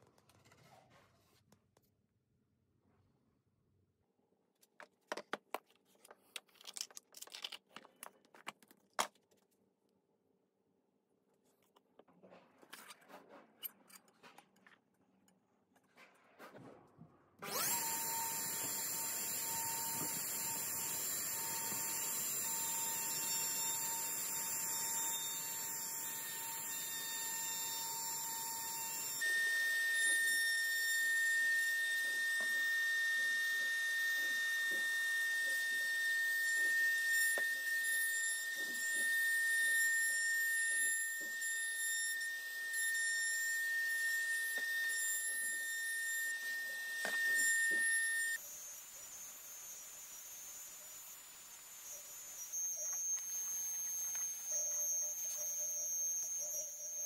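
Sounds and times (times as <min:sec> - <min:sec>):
router whining: 0:17.4 - 0:57.0.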